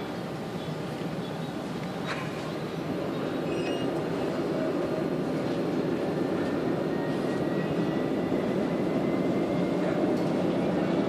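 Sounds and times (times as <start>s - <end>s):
tram rolling rumble: 0.0s - 11.0s
faint high whine: 6.3s - 11.0s.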